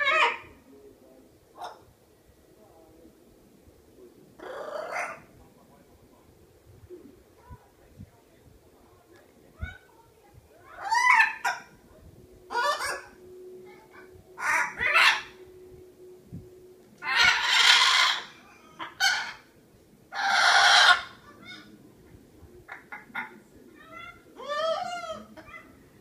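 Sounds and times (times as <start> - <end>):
macaw squawking: 10.7 - 11.7, 12.5 - 13.2, 14.0 - 15.4, 17.0 - 19.5, 20.1 - 21.7
macaw calling: 14.4 - 15.4, 17.0 - 19.5, 20.1 - 21.7.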